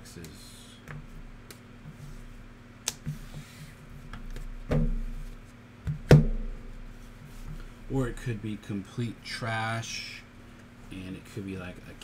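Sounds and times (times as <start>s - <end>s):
knock with dull thud: 4.7s - 5.0s, 5.9s - 6.5s.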